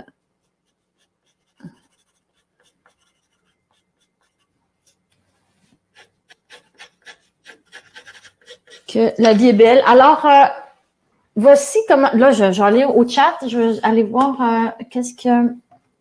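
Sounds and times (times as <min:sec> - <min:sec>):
pencil shading on paper: 0:00.4 - 0:09.0.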